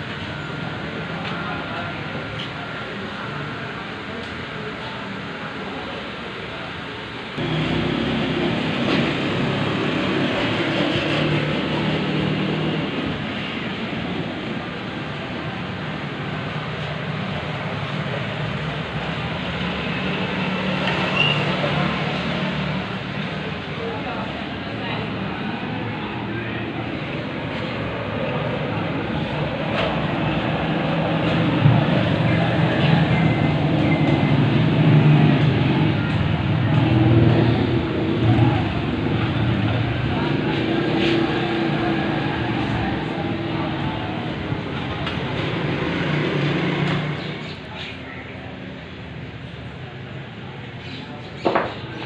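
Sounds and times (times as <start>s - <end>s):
low mechanical drone: 0.0s - 47.7s
background rush: 21.5s - 47.8s.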